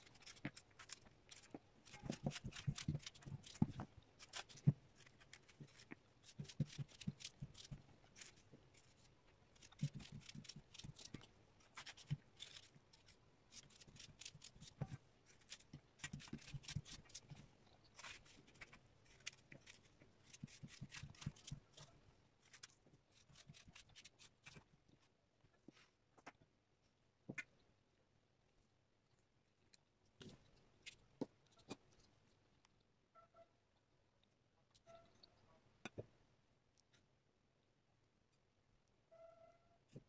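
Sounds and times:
knife cutting fruit: 0.0 - 24.7.

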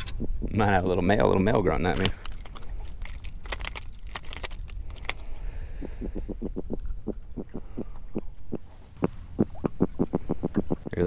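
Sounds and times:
fish grunting low knocking pulses: 5.5 - 11.0.

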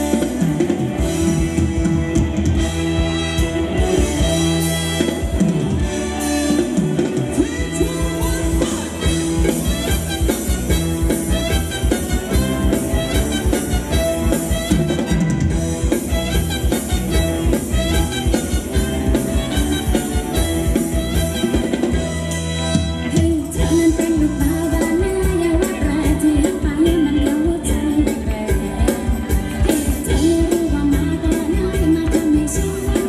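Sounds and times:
drum kit fast beat: 0.0 - 22.9
wavering lead melody: 0.0 - 30.7
live dance band playing: 0.0 - 33.0.

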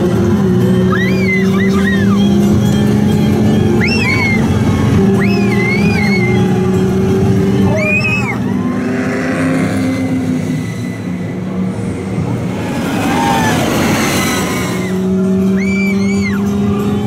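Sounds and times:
ride vehicle humming: 0.0 - 17.0
rushing wind: 3.6 - 16.5
high whoops: 3.8 - 6.5, 7.7 - 9.0, 12.7 - 17.0.

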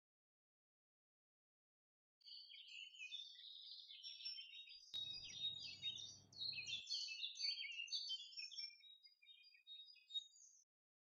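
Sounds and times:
small birds chirping: 2.2 - 10.7.

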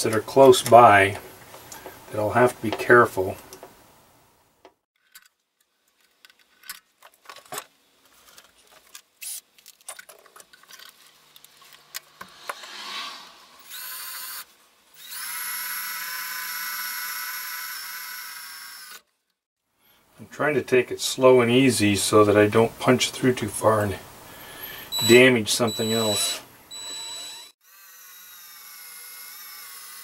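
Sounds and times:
power drill boring into metal: 24.9 - 27.6.

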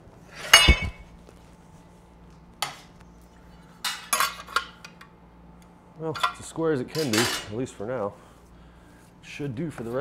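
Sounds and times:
metal tools clanking on steel: 0.5 - 1.0, 3.8 - 4.8, 6.1 - 7.6.

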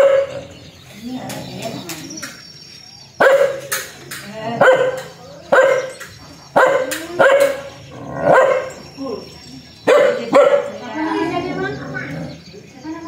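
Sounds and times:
dog barking: 0.0 - 0.5, 3.2 - 3.8, 4.6 - 8.8, 9.8 - 10.8.

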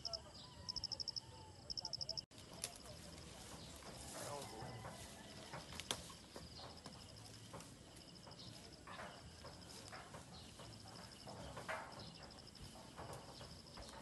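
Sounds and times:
high chirping: 0.0 - 2.2
cement mixer pushed over grass: 2.8 - 14.0.

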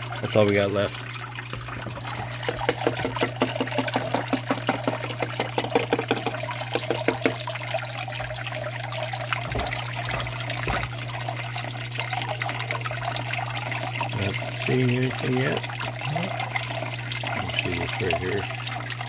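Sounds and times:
water trickling: 0.0 - 19.0
spoon tapping: 2.4 - 7.4.

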